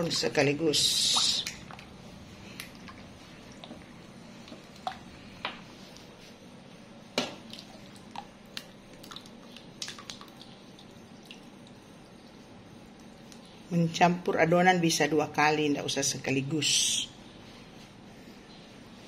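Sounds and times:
batter squelching when stirred: 0.0 - 13.9.

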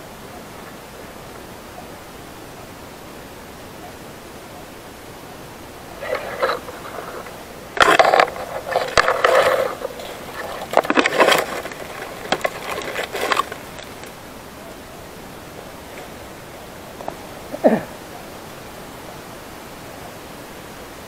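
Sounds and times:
brush rustling and crackling: 5.8 - 17.6
steady hiss: 13.3 - 21.0.

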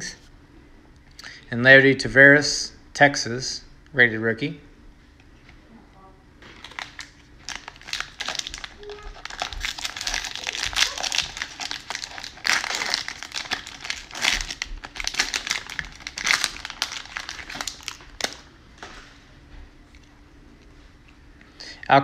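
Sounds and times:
plastic wrapper tearing and crinkling: 6.4 - 18.5.

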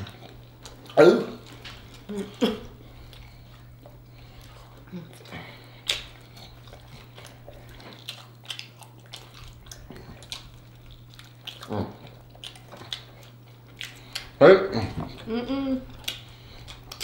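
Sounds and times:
steady low hum: 0.0 - 17.0
person humming: 2.1 - 2.8, 4.8 - 5.6, 14.5 - 16.1
wet mouth smacks and sucking: 5.8 - 11.6, 16.0 - 17.0.

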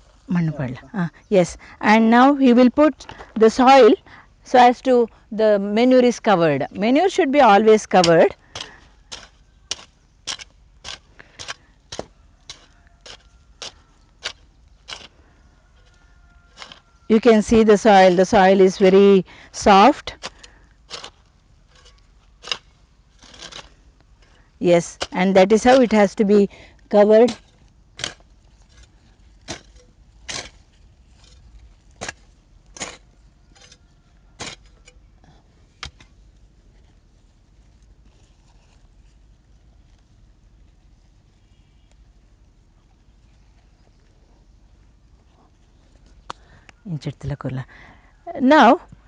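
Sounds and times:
hand hoe chopping into soil: 8.0 - 15.1, 16.6 - 16.8, 20.2 - 26.1, 27.2 - 33.8, 34.4 - 34.9
sharp knocks from digging soil: 8.0 - 15.1.

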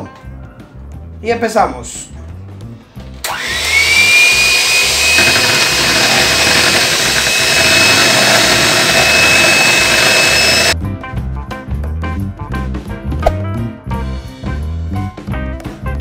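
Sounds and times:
electric hand mixer whining: 3.2 - 10.8
background music with a beat: 10.8 - 16.0.

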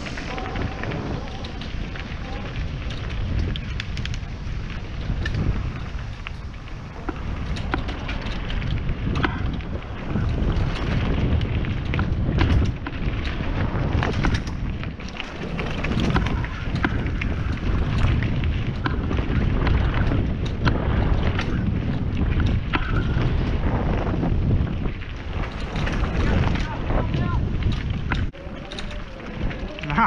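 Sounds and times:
bike rattling over bumps: 0.0 - 30.0
tyres rolling on dirt: 0.0 - 30.0
wind buffeting microphone: 0.0 - 30.0.

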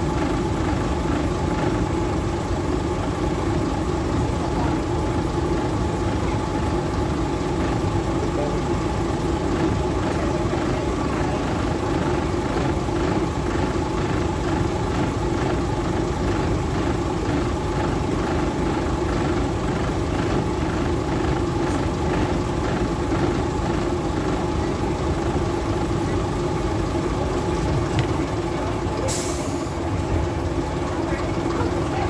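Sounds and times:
train engine idling: 0.0 - 32.0.

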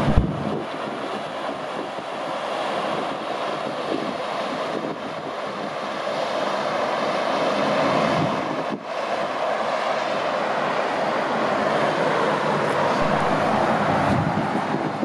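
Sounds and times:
steady rushing noise: 0.0 - 2.2, 8.8 - 15.0.

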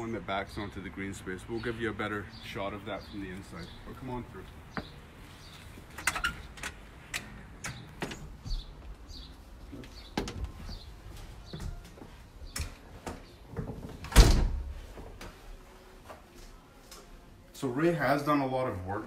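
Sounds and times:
latch clicks: 6.0 - 8.6
footsteps: 8.0 - 14.0, 14.6 - 17.3
door thudding shut: 14.0 - 14.8.

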